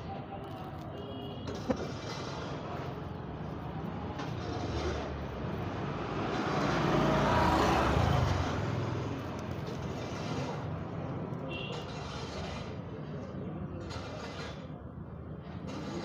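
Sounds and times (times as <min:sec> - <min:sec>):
road vehicle passing: 0:00.0 - 0:14.4.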